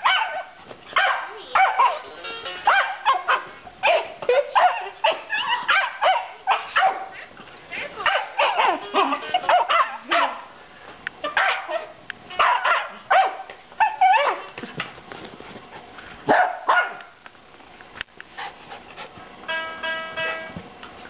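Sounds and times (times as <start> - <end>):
puppy barking: 0.0 - 7.2, 8.0 - 10.5, 11.2 - 14.5, 16.3 - 17.1.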